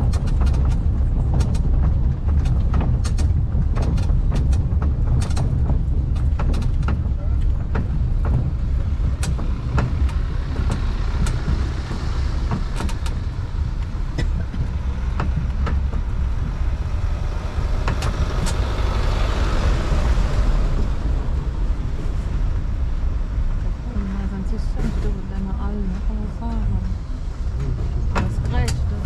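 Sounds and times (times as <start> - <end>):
sharp knocks and rattles: 0.0 - 20.9
train rumbling over cobblestones: 0.0 - 29.0.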